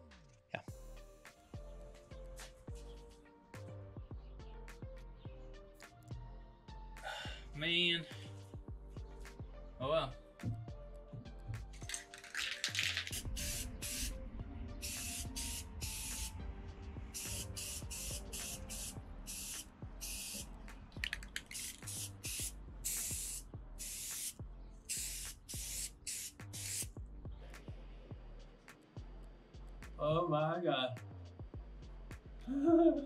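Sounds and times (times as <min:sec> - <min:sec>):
background music: 0:00.0 - 0:33.0
aerosol spray can hissing: 0:11.9 - 0:14.1, 0:14.8 - 0:16.4, 0:17.2 - 0:26.9.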